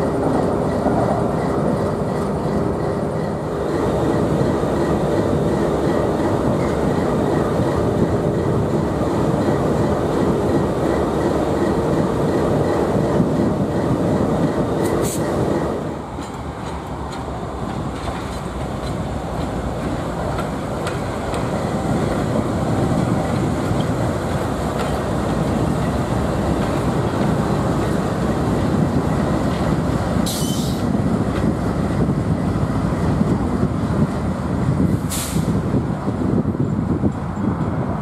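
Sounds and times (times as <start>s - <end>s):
diesel locomotives rumbling: 0.0s - 38.0s
air hiss bursts: 35.0s - 35.6s.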